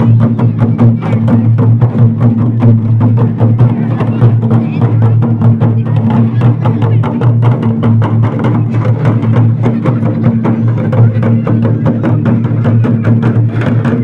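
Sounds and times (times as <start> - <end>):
hand drums playing fast rhythm: 0.0 - 14.0.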